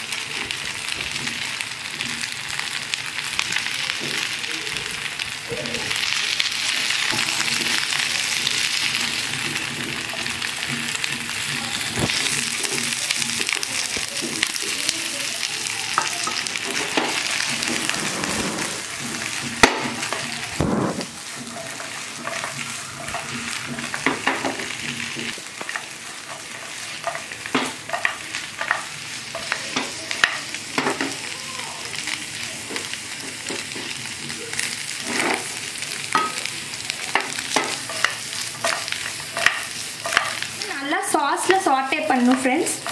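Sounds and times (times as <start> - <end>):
chicken sizzling in sauce: 0.0 - 42.9
spatula scraping and knocking pan: 16.0 - 31.1, 37.1 - 40.6.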